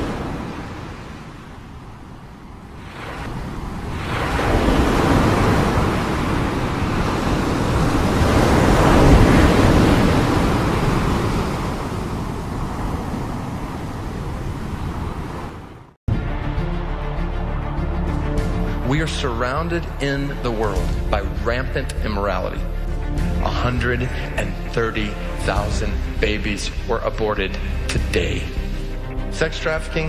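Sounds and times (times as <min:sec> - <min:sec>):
rushing noise: 0:02.7 - 0:12.8.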